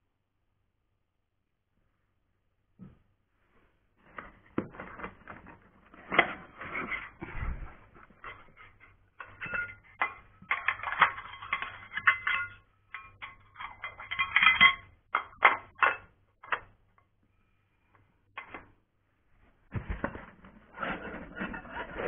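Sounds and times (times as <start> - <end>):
metal parts clattering and knocking: 4.7 - 16.8.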